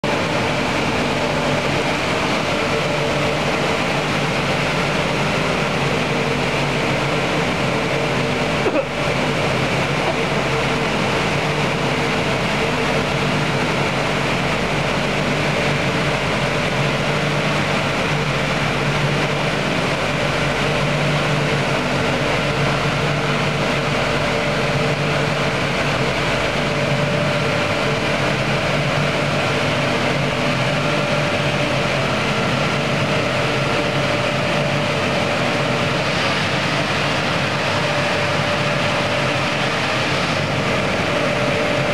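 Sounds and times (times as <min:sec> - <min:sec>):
hum of fans and motors: 0:00.0 - 0:41.9.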